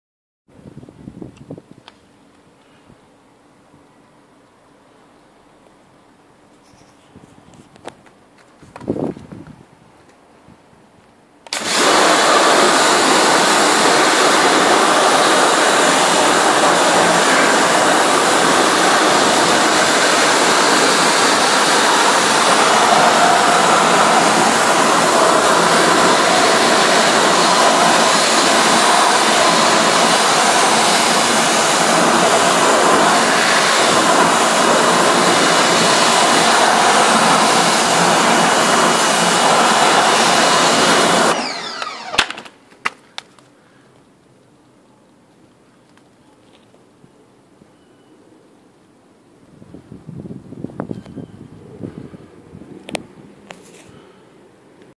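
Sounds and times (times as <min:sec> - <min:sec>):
pressure washer spraying hiss: 0:11.5 - 0:42.2.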